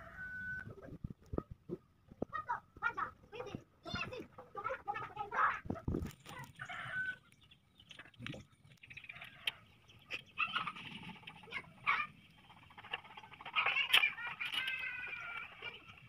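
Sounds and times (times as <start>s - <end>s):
chickens clucking: 3.4s - 16.0s.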